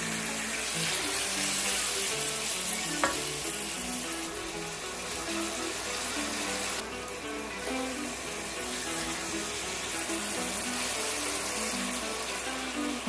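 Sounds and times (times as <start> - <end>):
steaks sizzling in hot oil: 0.0 - 13.0
spatula tapping a pan: 3.0 - 3.5.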